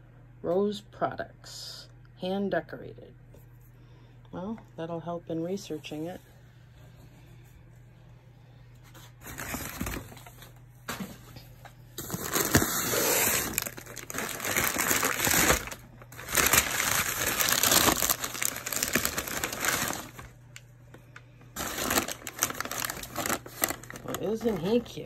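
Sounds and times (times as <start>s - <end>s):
packing paper crumpling: 8.9s - 10.4s, 12.0s - 20.6s, 21.6s - 25.0s.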